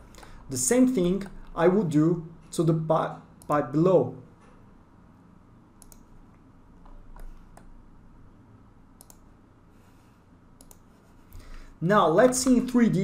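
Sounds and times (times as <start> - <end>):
computer mouse clicks: 5.8 - 7.7, 9.0 - 9.3, 10.6 - 11.0.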